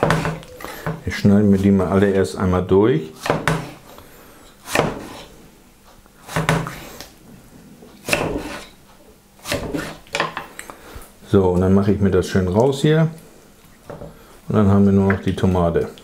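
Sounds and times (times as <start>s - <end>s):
knife cutting on wooden board: 3.2s - 3.8s, 4.6s - 5.3s, 6.2s - 6.9s, 8.0s - 8.8s, 9.4s - 10.1s.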